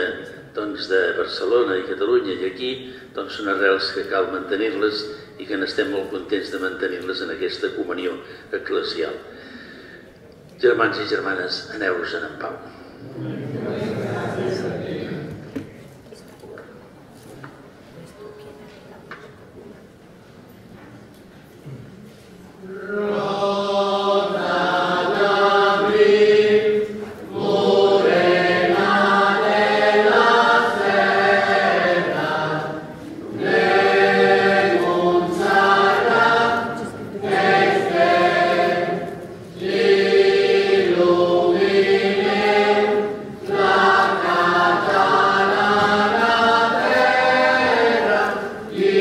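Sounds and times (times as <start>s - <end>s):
group singing a hymn: 13.0s - 15.4s, 22.6s - 49.0s.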